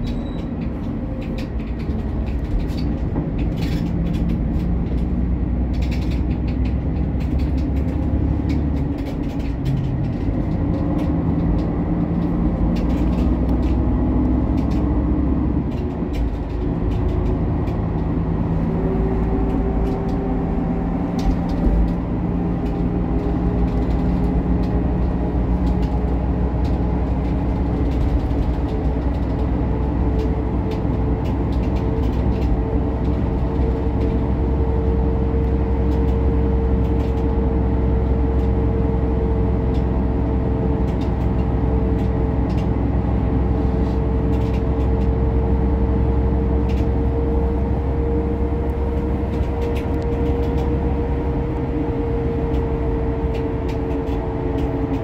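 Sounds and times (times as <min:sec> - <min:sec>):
bus engine and road drone: 0:00.0 - 0:55.0
clicks and rattles: 0:00.1 - 0:13.9, 0:22.6 - 0:29.6, 0:52.4 - 0:55.0.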